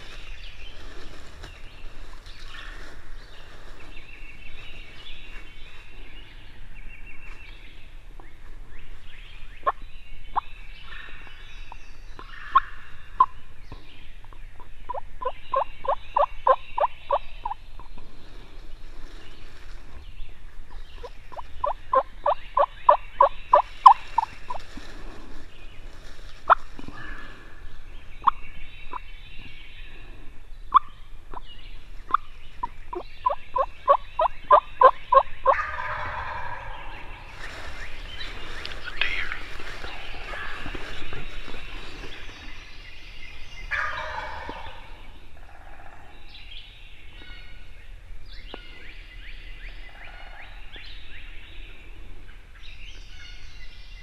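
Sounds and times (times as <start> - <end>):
faint birdsong: 0.0 - 54.0.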